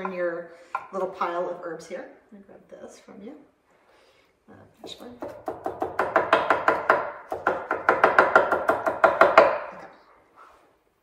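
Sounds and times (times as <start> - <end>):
knife chopping on wooden board: 5.2 - 9.7.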